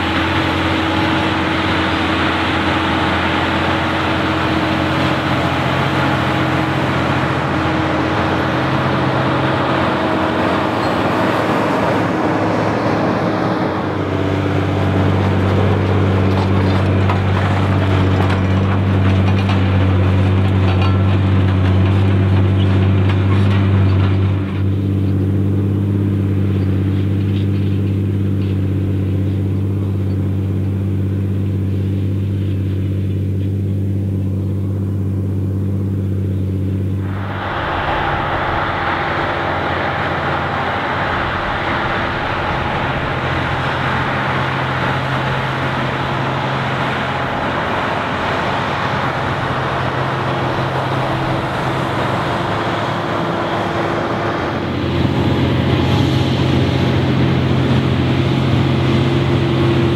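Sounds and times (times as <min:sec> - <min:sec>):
tractor engines working hard: 0:00.0 - 0:59.9.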